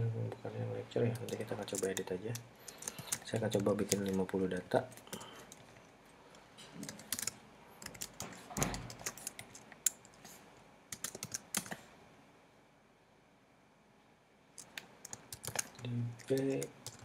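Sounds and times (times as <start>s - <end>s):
typing on computer keyboard: 1.1s - 4.3s, 4.9s - 5.6s, 6.8s - 10.1s, 10.9s - 11.8s, 14.6s - 17.0s.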